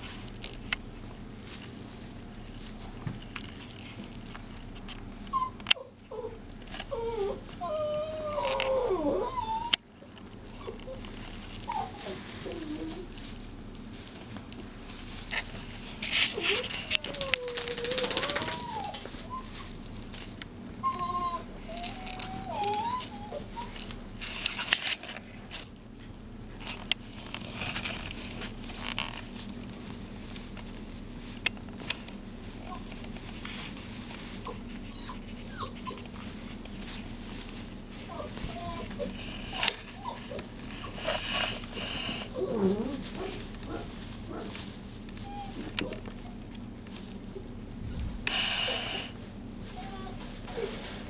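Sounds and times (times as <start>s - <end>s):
scuffling and rustling: 0.0s - 51.0s
puppies whimpering and whining: 5.3s - 13.3s, 16.0s - 19.8s, 20.7s - 24.7s, 33.6s - 43.8s, 45.1s - 46.6s, 48.3s - 51.0s.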